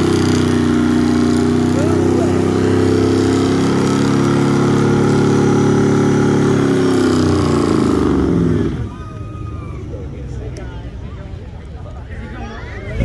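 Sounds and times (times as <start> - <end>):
car engine revving high: 0.0 - 9.0.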